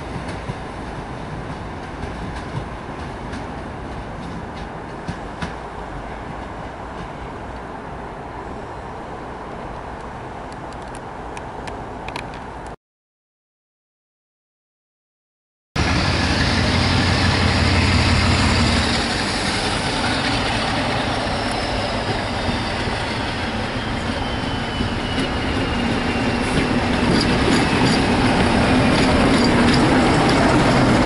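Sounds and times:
diesel locomotive passing: 0.0 - 12.7, 15.8 - 31.0
wheels clicking over rail joints: 24.8 - 31.0.

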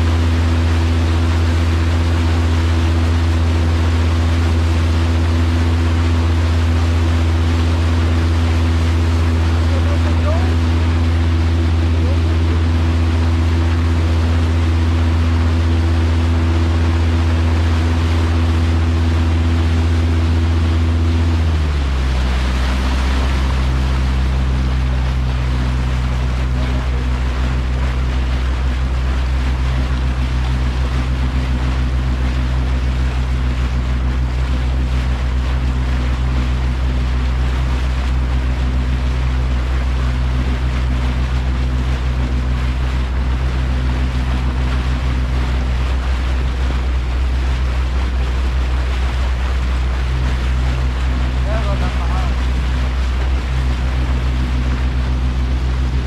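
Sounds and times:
boat motor running: 0.0 - 56.0
water rushing past hull: 0.0 - 56.0.

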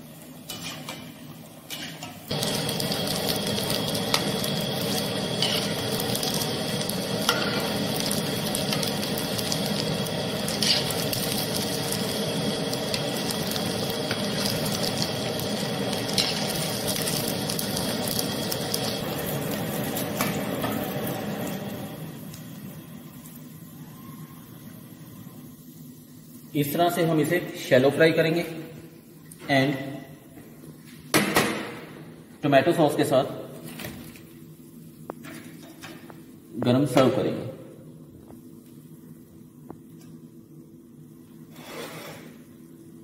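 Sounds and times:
oil sizzling: 0.0 - 29.4.

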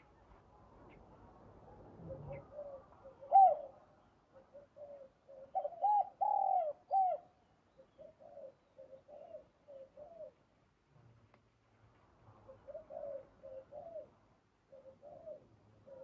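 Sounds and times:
dove cooing: 2.0 - 10.4, 12.4 - 16.0.

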